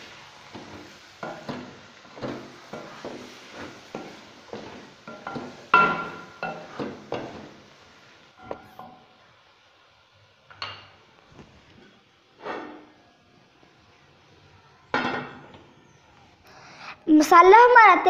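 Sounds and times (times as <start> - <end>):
spatula knocking and scraping pan: 0.0 - 7.7, 8.4 - 9.1, 12.4 - 13.0.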